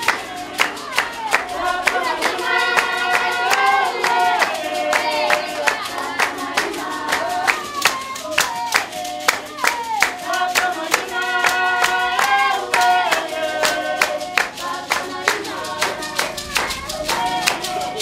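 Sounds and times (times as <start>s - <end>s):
group of voices singing: 0.0s - 18.0s
steady hand-clapping: 0.0s - 18.0s.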